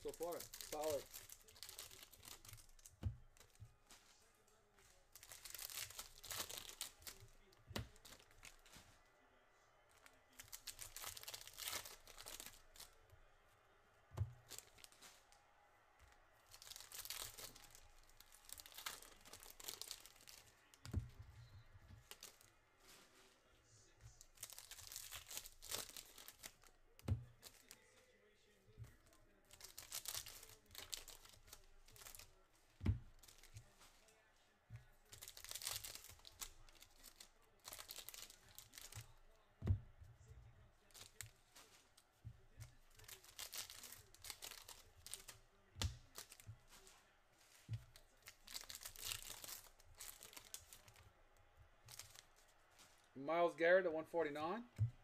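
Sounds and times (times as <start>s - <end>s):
foil wrappers tearing and crinkling: 0.0s - 9.0s, 10.0s - 13.0s, 14.2s - 15.4s, 16.4s - 21.0s, 21.9s - 23.5s, 24.1s - 27.9s, 28.8s - 34.2s, 34.8s - 51.1s, 51.8s - 53.2s.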